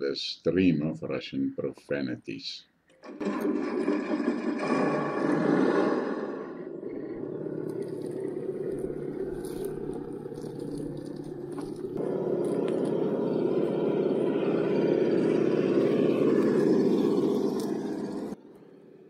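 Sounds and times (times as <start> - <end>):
truck engine running: 6.8 - 18.4.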